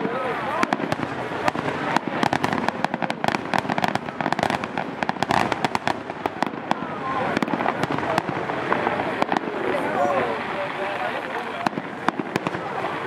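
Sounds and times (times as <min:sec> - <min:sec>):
fireworks bursting: 0:00.0 - 0:13.0.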